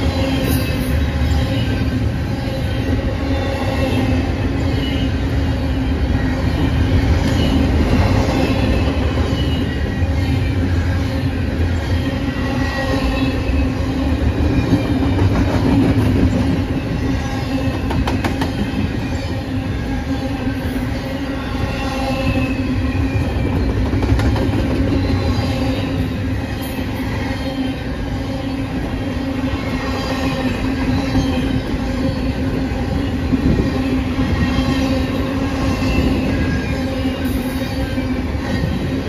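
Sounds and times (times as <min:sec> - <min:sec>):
freight train rumbling on rails: 0:00.0 - 0:39.0
high wheel squeal: 0:24.9 - 0:39.0.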